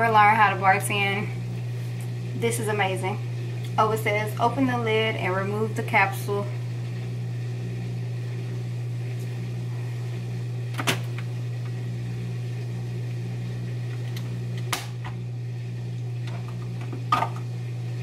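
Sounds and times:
machine humming: 0.0 - 18.0.

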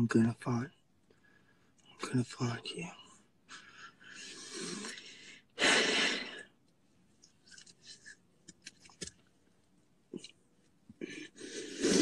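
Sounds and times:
faint sniffles: 11.0 - 12.0.

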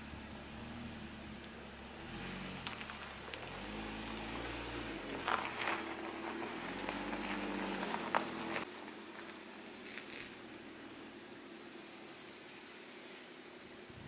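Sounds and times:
car engine at low revs: 0.0 - 14.0
tyres crunching on gravel: 0.2 - 11.1
stones crackling: 2.3 - 10.7.

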